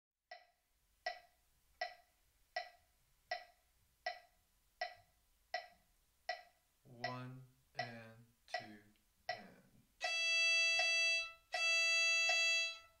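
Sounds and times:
metronome ticking: 0.3s - 13.0s.

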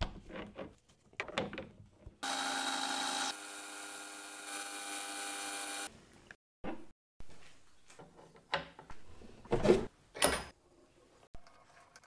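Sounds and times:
metal lathe running: 2.2s - 5.9s.

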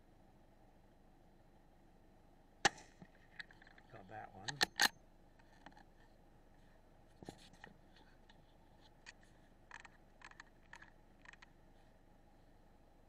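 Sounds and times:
faint clicks and scratches: 3.0s - 12.6s.

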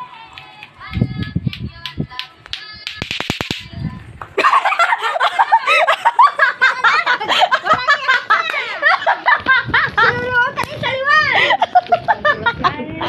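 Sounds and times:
clacker balls clacking: 0.3s - 3.7s
high-pitched laughing: 4.4s - 13.0s.

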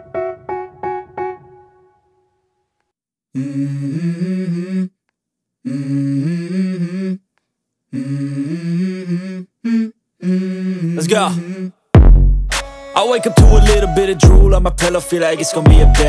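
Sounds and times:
keyboard riff: 0.0s - 2.0s, 12.4s - 16.0s
person humming vocal phrases: 7.9s - 11.8s.

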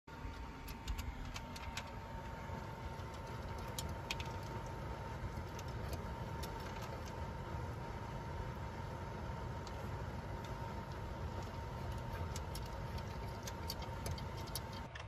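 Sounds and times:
low hum: 0.1s - 15.0s
dog eating dry kibble: 10.8s - 15.0s.

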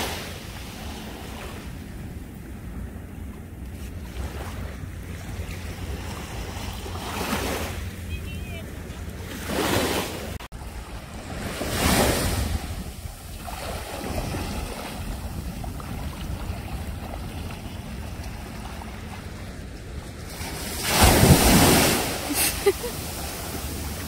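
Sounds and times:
small waves washing in surf: 0.0s - 24.0s
wind buffeting microphone: 10.6s - 22.1s.

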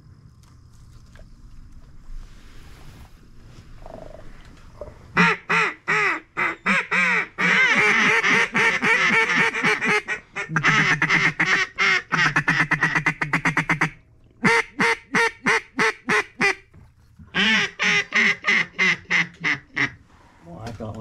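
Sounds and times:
duck call quacking: 5.2s - 16.6s, 17.3s - 20.0s.

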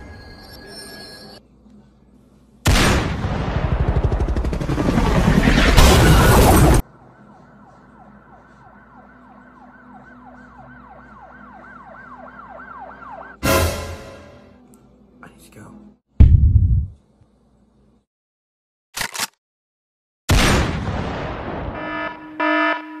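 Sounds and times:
helicopter rotor rushing noise: 3.8s - 6.8s.

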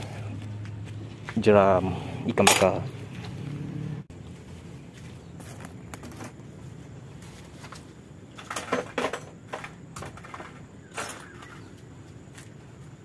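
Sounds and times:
hand tools clinking in toolbox: 2.4s - 2.9s, 8.3s - 11.7s.

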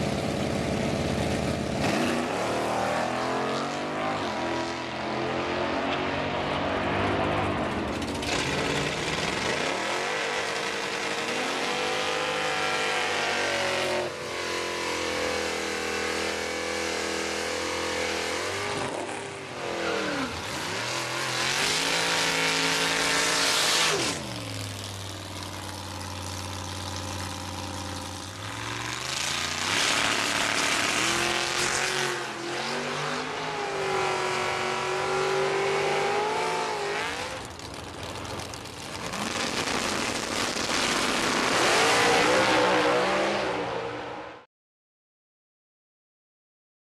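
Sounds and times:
car engines idling and revving: 0.0s - 44.4s
cars launching at full throttle: 38.7s - 44.4s.

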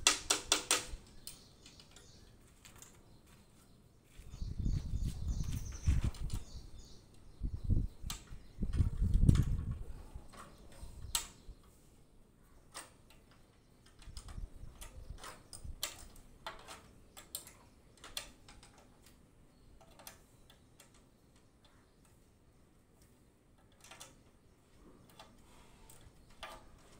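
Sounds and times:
sharp metallic clicks and taps: 0.0s - 3.0s.

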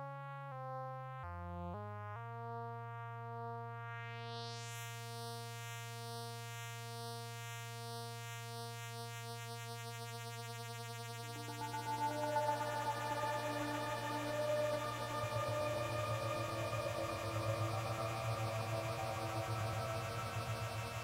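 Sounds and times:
low synthesizer drone: 11.2s - 21.0s
higher synthesizer tone: 11.4s - 21.0s.

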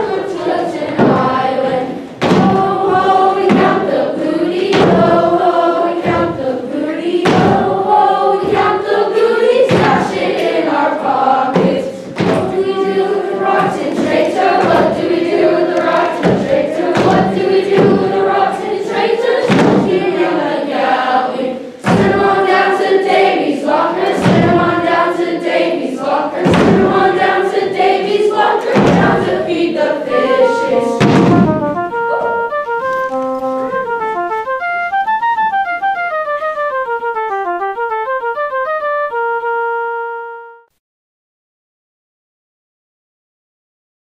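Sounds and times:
thumping beat: 0.0s - 6.4s, 7.2s - 8.9s, 9.7s - 10.7s, 11.5s - 20.4s, 21.8s - 23.2s, 24.0s - 25.2s, 26.4s - 38.7s
children's choir singing: 0.0s - 32.5s
instrumental melody: 30.0s - 40.8s.

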